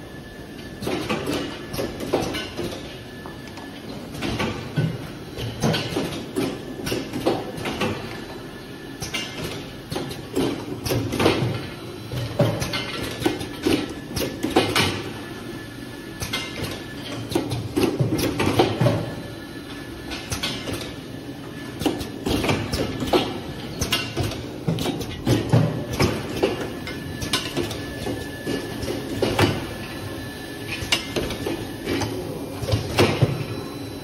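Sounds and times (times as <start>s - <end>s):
conveyor hum: 0.0s - 34.0s.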